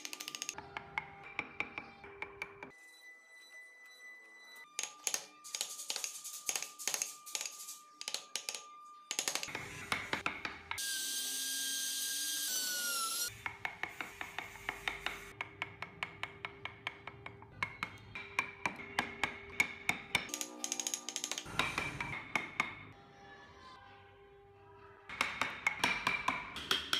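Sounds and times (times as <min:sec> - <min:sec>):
small power tool whirring: 0:10.8 - 0:13.3.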